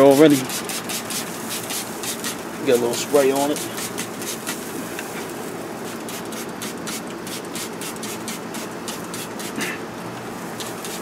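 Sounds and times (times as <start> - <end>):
spray bottle spritzing: 0.3 - 2.4, 3.2 - 4.8, 5.8 - 9.7.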